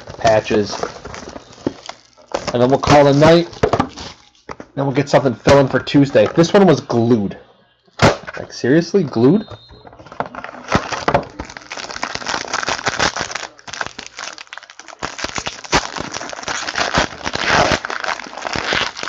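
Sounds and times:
foil wrapper crinkling and tearing: 0:00.0 - 0:04.5, 0:10.1 - 0:19.0.

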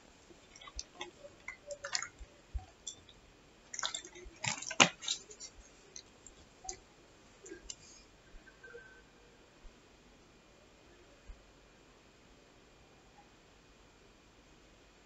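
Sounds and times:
fingers stirring flour in bowl: 0:00.3 - 0:08.0.

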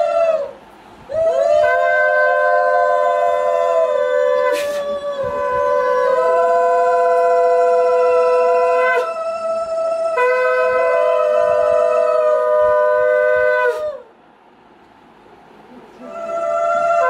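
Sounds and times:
conch shells blown: 0:00.0 - 0:09.2, 0:10.1 - 0:14.1.

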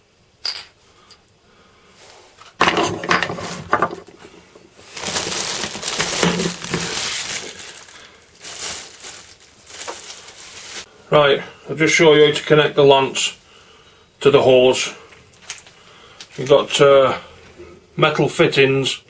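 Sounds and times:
plastic bag crinkling: 0:02.7 - 0:10.9.

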